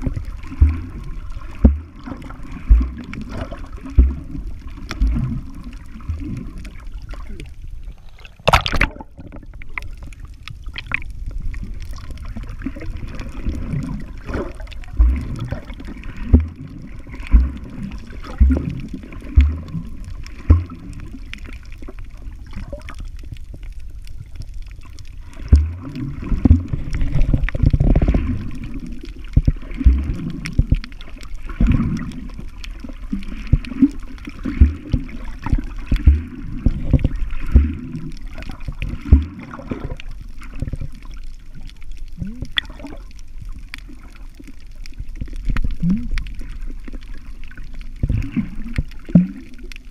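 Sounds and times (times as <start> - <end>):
underwater sloshing and gurgling: 0.0 - 49.9
sharp splash: 8.2 - 9.2.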